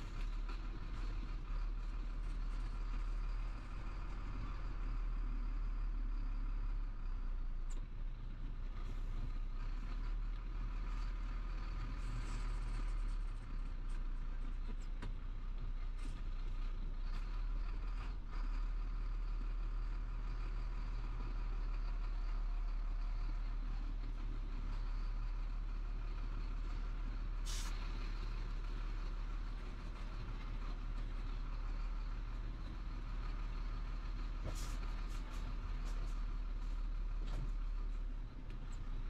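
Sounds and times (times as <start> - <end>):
diesel truck engine rumbling: 0.0 - 39.0
short hiss: 27.4 - 27.8.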